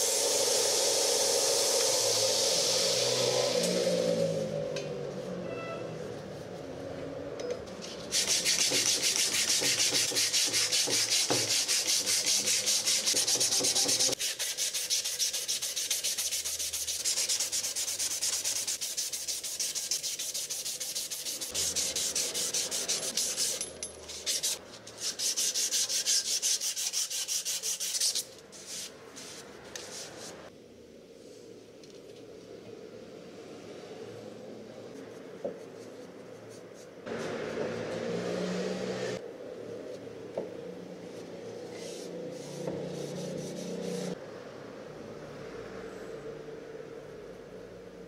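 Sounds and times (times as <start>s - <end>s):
sanding strip rasping on wood: 8.1s - 28.9s.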